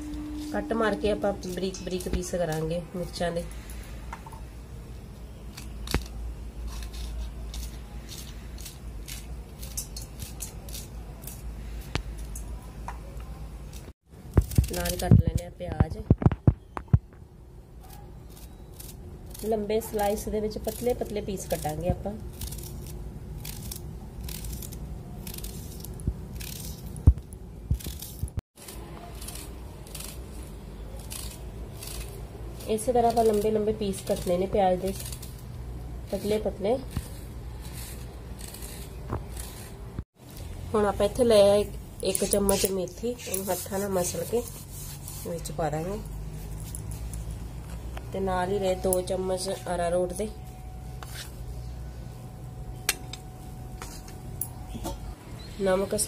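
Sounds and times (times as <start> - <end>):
low hum: 0.0 - 6.9, 45.8 - 55.5
knife cutting chilli: 5.5 - 12.6.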